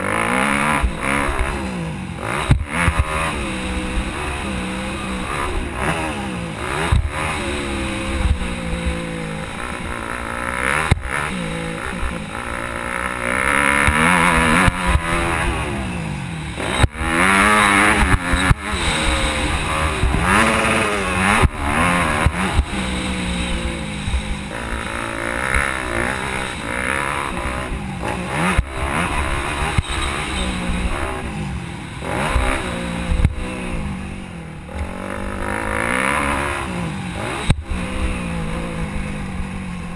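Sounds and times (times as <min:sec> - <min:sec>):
motocross engine revving: 0:00.0 - 0:39.9
sharp knocks over bumps: 0:02.4 - 0:03.4, 0:06.8 - 0:07.4, 0:13.6 - 0:15.5, 0:16.6 - 0:27.6.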